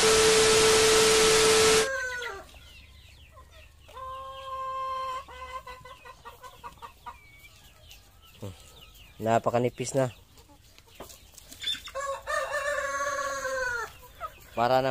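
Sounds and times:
static hiss with steady beep: 0:00.0 - 0:02.0
chickens clucking: 0:01.7 - 0:14.9.

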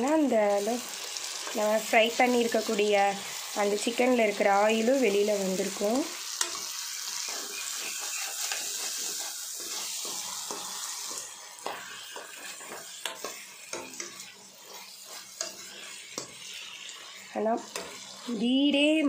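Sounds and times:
food sizzling in oil: 0:00.0 - 0:19.0
metal spatula scraping pan: 0:00.5 - 0:19.0
spatula clicking on pan: 0:06.3 - 0:16.5.

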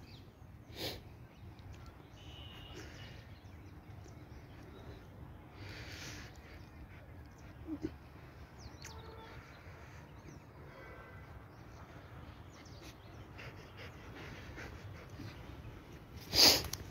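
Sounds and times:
faint bird chirps: 0:00.0 - 0:08.0, 0:08.6 - 0:12.2.

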